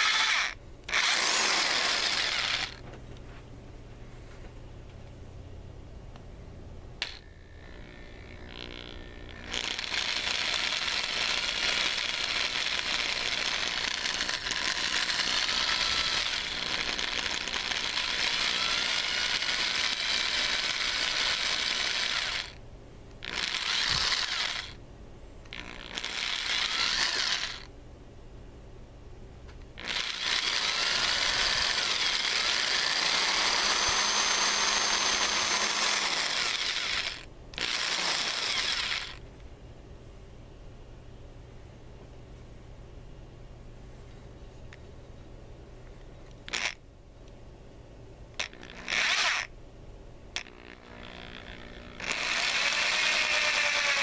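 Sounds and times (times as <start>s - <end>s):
electric drill motor running: 0.0s - 2.8s, 7.0s - 22.6s, 23.2s - 24.8s, 25.5s - 27.7s, 29.8s - 39.2s, 46.5s - 46.8s, 48.4s - 49.5s, 50.4s - 54.0s.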